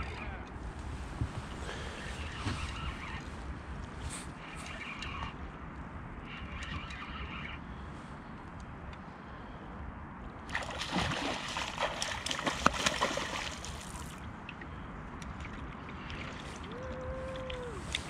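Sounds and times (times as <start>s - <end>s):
fish thrashing and splashing: 10.5s - 14.2s.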